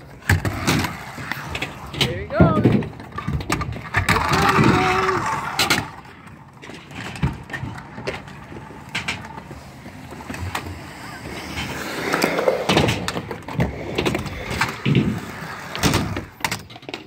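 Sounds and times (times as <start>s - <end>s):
wheels rolling on concrete: 0.0s - 17.0s.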